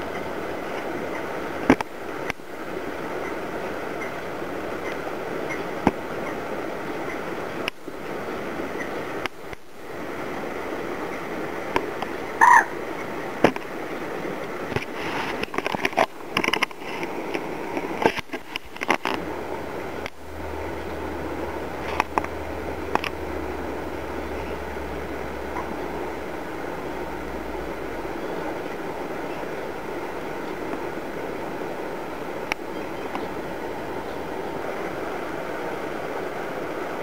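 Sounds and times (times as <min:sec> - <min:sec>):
steady background hiss: 0:00.0 - 0:37.0
croaking calls: 0:04.8 - 0:06.4, 0:12.4 - 0:13.1, 0:24.0 - 0:26.2.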